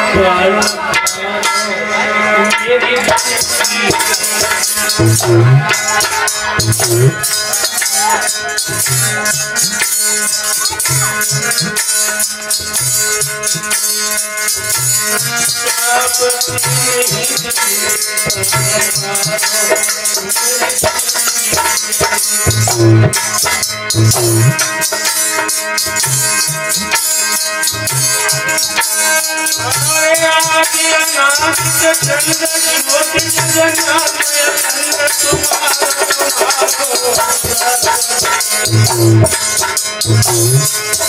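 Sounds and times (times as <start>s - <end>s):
man singing: 0.0s - 12.2s, 14.6s - 25.0s, 29.3s - 41.0s
sustained held notes: 3.6s - 9.6s, 23.8s - 24.7s, 38.6s - 39.4s
rattle shaken: 28.5s - 41.0s.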